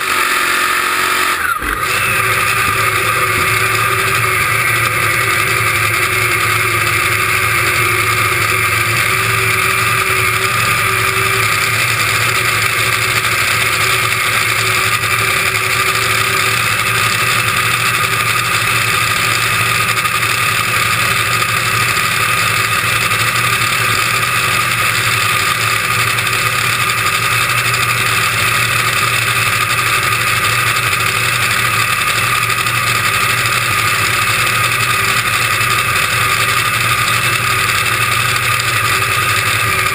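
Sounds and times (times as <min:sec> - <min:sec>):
dragster engine idling: 0:00.0 - 0:39.9.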